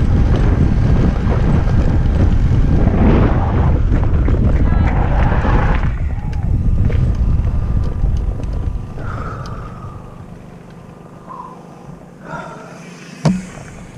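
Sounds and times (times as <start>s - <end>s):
wind on microphone: 0.0s - 10.2s
tyres rumbling on gravel: 0.0s - 11.2s.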